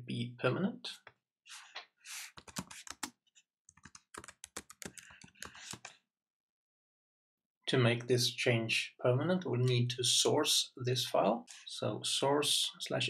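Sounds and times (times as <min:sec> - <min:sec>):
computer keyboard typing: 0:02.4 - 0:03.1, 0:03.7 - 0:05.9.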